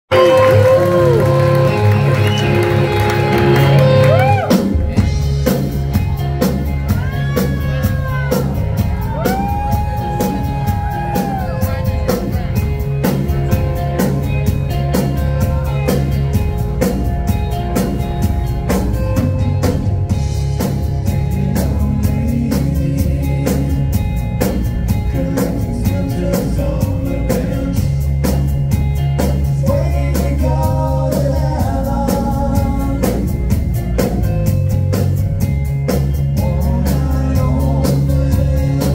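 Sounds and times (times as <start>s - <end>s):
bass line: 0.1s - 38.9s
drum kit beat: 0.1s - 38.9s
electric guitars: 0.1s - 38.9s.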